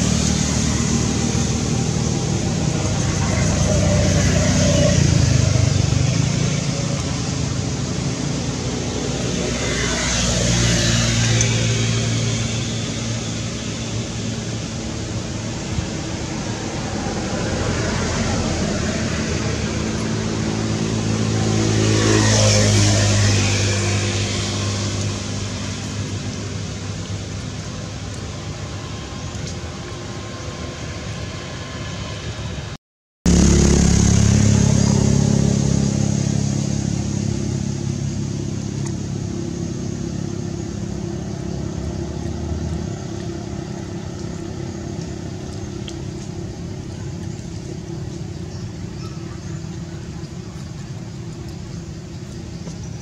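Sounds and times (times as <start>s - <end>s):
motor vehicle engine running: 0.0s - 32.7s, 33.3s - 53.0s.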